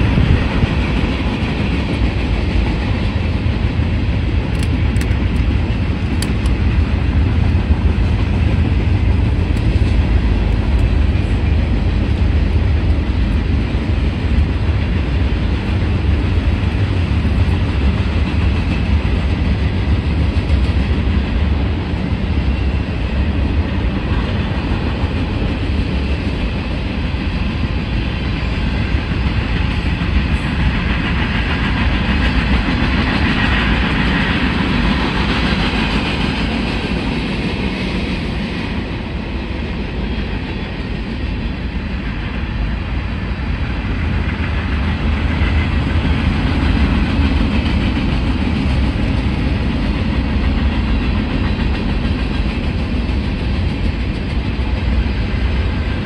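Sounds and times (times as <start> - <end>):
train wheels on rails: 0.0 - 56.0.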